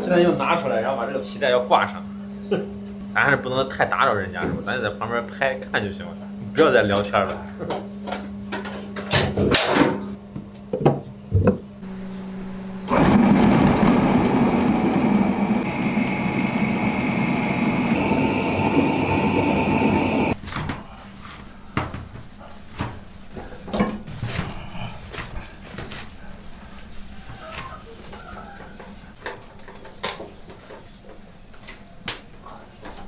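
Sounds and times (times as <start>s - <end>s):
high motor whine: 11.8s - 20.4s
electric motor running: 12.8s - 20.4s.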